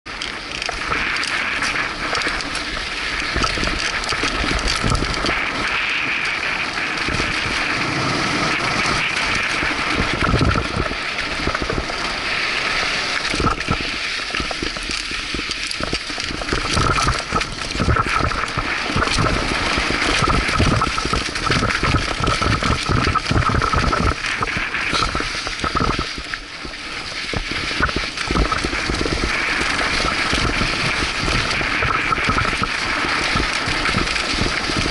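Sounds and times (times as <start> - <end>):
wind noise on microphone: 0.0 - 34.9
bike chain and frame rattling: 0.1 - 34.9.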